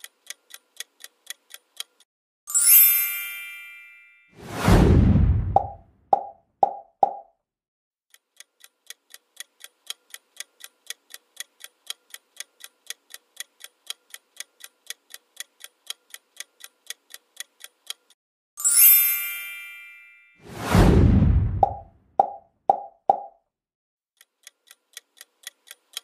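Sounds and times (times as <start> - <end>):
timer clock ticking: 0.0 - 2.1, 8.1 - 18.2, 24.2 - 26.0
bright chime: 2.5 - 4.4, 18.6 - 20.5.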